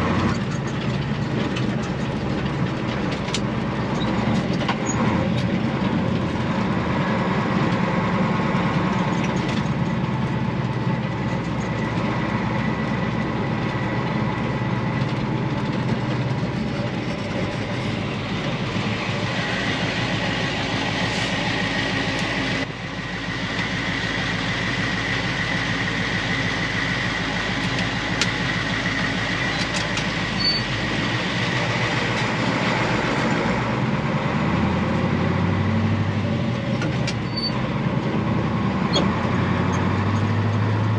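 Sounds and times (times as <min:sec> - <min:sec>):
diesel truck engine: 0:00.0 - 0:40.9
cab rattles: 0:00.1 - 0:06.8
steady high whine: 0:16.5 - 0:30.8.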